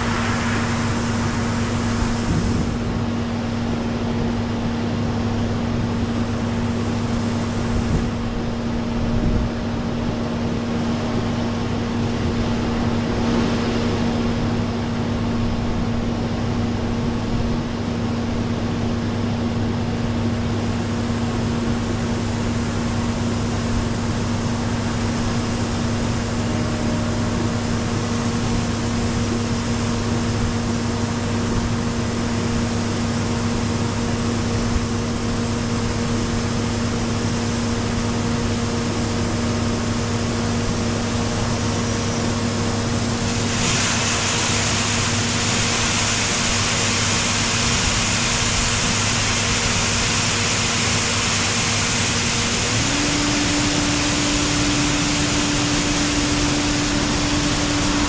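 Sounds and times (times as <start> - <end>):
high hiss: 0.0 - 4.2, 42.3 - 58.0
combine harvester droning: 0.0 - 58.0.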